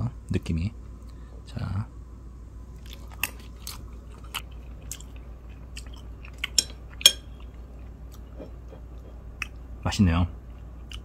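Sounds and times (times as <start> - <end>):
person chewing food: 2.8 - 9.7, 10.4 - 11.0.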